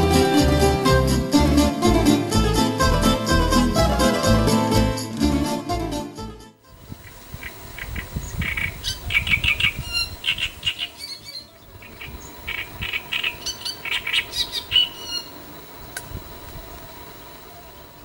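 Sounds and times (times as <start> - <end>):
warbler singing: 6.9 - 15.4.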